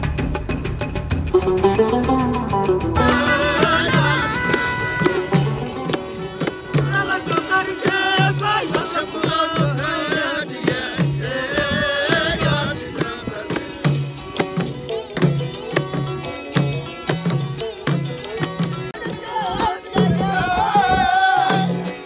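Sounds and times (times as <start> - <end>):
zither: 0.0 - 20.4
frame drums beating: 0.0 - 22.0
long-necked lute: 1.2 - 22.0
men singing: 3.0 - 14.6, 18.9 - 22.0.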